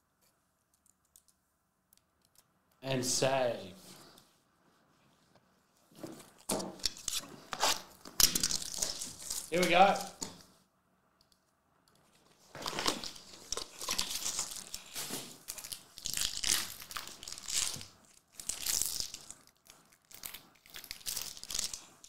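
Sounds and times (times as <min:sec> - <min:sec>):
foil wrapper crinkling and tearing: 0:06.9 - 0:10.2, 0:12.6 - 0:22.0.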